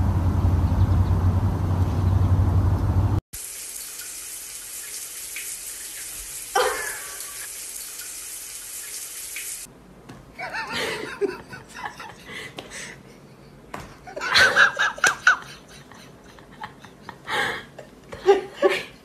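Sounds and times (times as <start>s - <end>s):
running water hiss: 3.4s - 9.7s.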